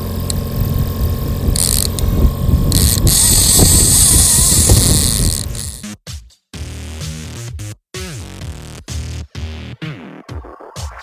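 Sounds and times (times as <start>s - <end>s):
boat noise: 0.0s - 5.8s
fishing reel buzzing: 0.0s - 5.8s
wind rumble: 0.4s - 5.8s.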